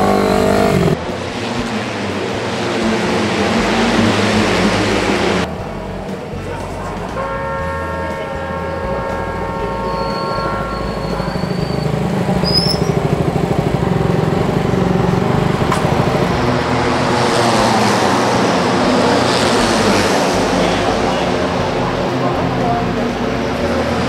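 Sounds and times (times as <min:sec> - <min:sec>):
motorcycle engine at low revs: 0:00.0 - 0:01.9, 0:11.8 - 0:20.1
steady tone: 0:00.0 - 0:24.0.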